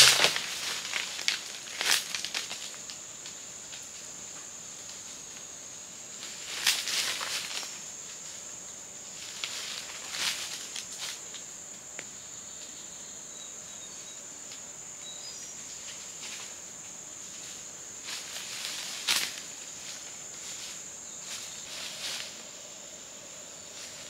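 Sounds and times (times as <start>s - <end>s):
footsteps crunching dry leaves: 0.0s - 2.9s, 6.3s - 7.8s, 9.2s - 11.3s, 17.2s - 22.4s
forest insects droning: 0.0s - 24.0s.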